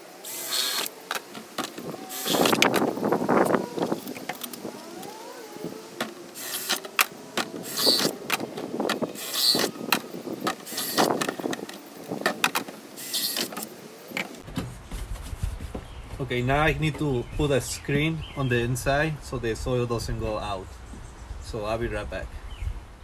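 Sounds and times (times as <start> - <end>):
cordless drill boring plastic: 0.0 - 2.9, 6.0 - 11.7, 13.0 - 13.6
plastic tubs knocking: 14.4 - 17.2.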